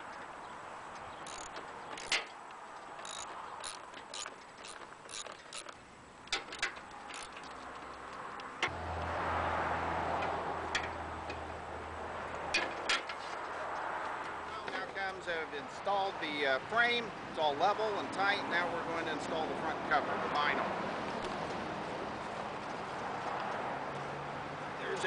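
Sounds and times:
ratchet clicking: 1.2s - 8.7s.

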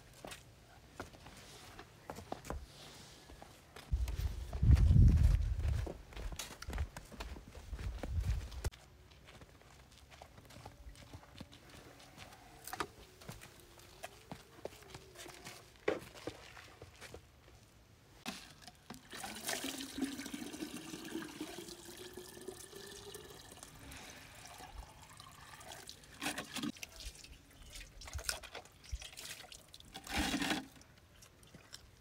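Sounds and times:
water pouring into a jug: 18.3s - 30.8s.

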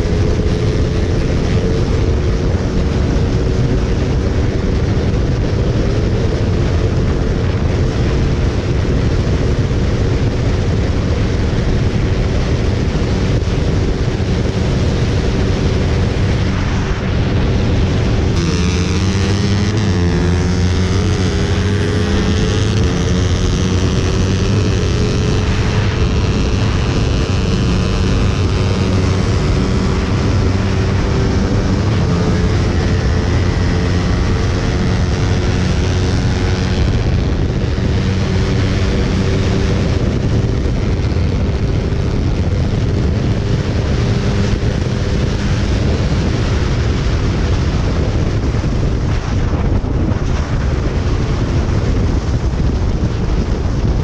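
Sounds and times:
motorcycle engine at speed: 0.0s - 54.0s
wind rushing: 0.0s - 54.0s.

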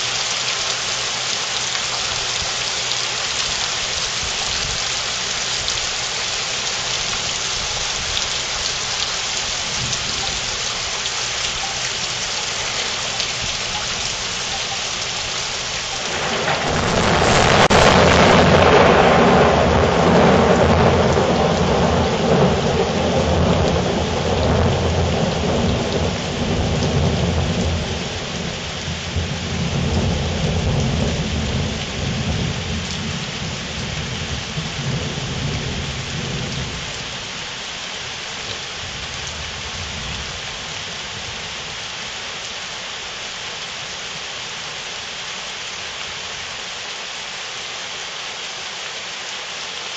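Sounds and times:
heavy rain falling: 0.0s - 49.9s
thunder clap and rumble: 15.9s - 36.8s.

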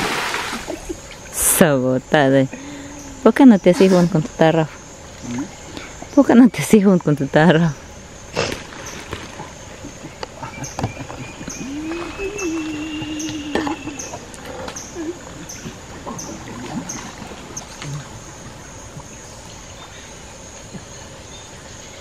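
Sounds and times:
water sloshing and trickling: 0.0s - 1.8s, 3.8s - 20.7s
insect noise: 0.0s - 22.0s
wavering call: 10.5s - 16.4s.

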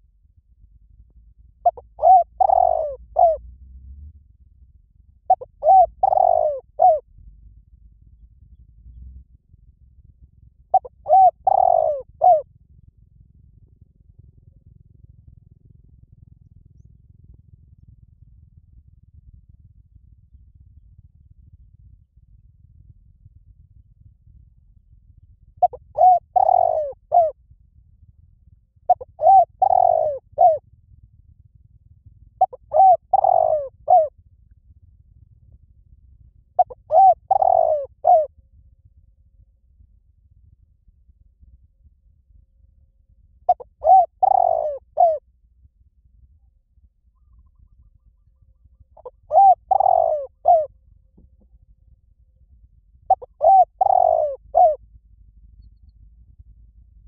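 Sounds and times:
dove cooing: 1.6s - 3.5s, 5.3s - 7.0s, 10.7s - 12.5s, 25.6s - 27.4s, 28.9s - 30.6s, 32.4s - 34.1s, 36.6s - 38.3s, 43.5s - 45.2s, 47.1s - 51.6s, 53.1s - 54.8s.

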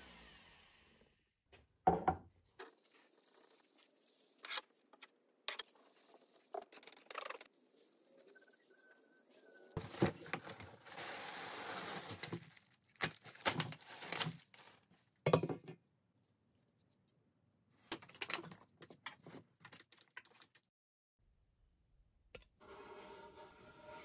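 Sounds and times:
plastic wrap crinkling: 9.8s - 15.2s.

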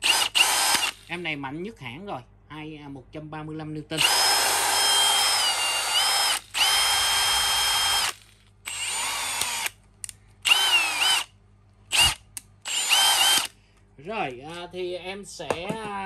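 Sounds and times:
power drill motor whine: 0.0s - 1.1s, 4.0s - 9.8s, 10.4s - 11.3s, 11.9s - 13.6s.

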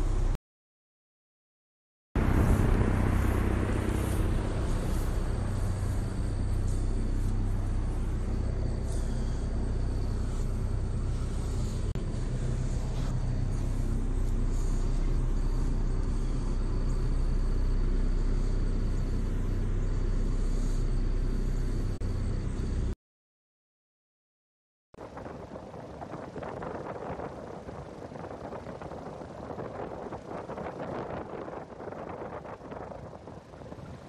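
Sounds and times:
exhaust fans rumbling and humming: 0.0s - 0.4s, 2.2s - 23.0s, 25.0s - 34.0s
faint high whine: 2.2s - 23.0s.

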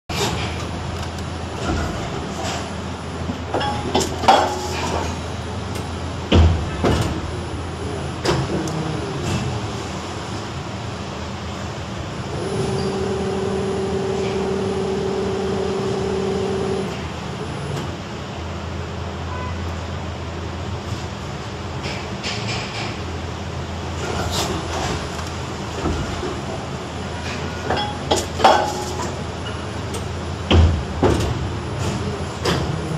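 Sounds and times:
machine whine: 0.4s - 18.0s
machine humming: 0.6s - 17.8s.

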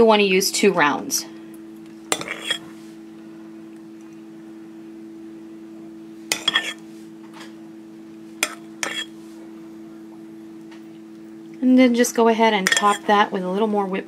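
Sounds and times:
metal spoon clinking against glass: 2.2s - 2.6s, 6.3s - 6.7s, 12.7s - 13.0s.

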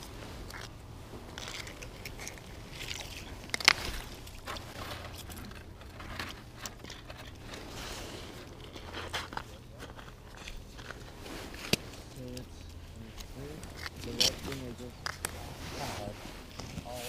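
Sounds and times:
crunching on snowy ice: 0.0s - 12.4s.

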